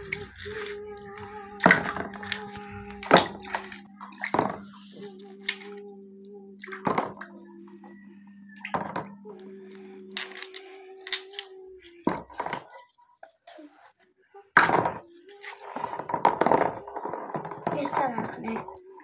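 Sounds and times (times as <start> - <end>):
steady hum: 0.0 - 12.2
water splashing in a plastic basin: 1.6 - 5.8, 6.6 - 7.3, 8.6 - 9.1, 10.1 - 12.8, 14.6 - 19.0.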